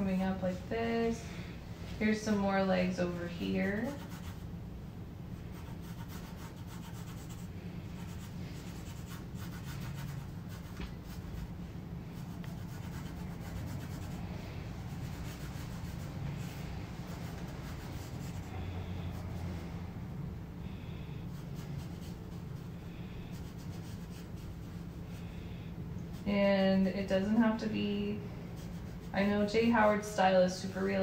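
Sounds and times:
steady low hum: 0.0 - 31.0
pencil scratching on paper: 3.8 - 4.4, 5.5 - 11.5, 12.2 - 14.2, 14.9 - 18.5, 21.3 - 22.7, 23.3 - 25.0, 28.6 - 29.3.

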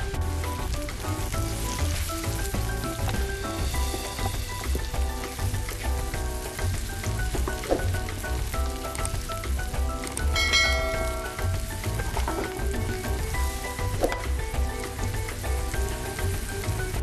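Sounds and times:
background music with steady beat: 0.0 - 17.0
vegetables sizzling in frying pan: 0.0 - 17.0
wooden spatula stirring: 0.4 - 10.4.

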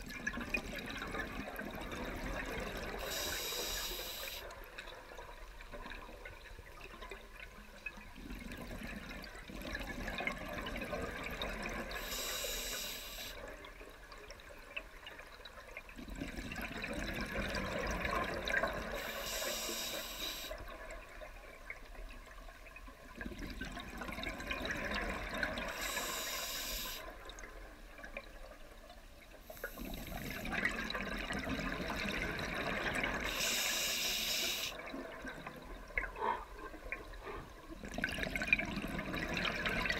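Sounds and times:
regulator inhale hiss: 3.0 - 4.5, 12.0 - 13.4, 19.0 - 20.6, 25.7 - 27.1, 29.5 - 30.5, 33.3 - 34.8
gurgling exhaled bubbles: 16.0 - 19.1, 23.2 - 26.2, 29.6 - 33.8, 34.8 - 39.9.

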